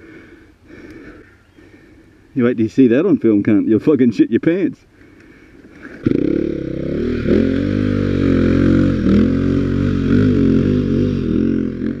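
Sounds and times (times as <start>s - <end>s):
dirt bike engine revving: 5.9s - 12.0s.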